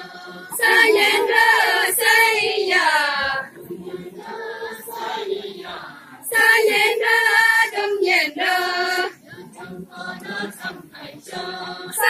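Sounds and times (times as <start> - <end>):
women singing unaccompanied: 0.0 - 12.0.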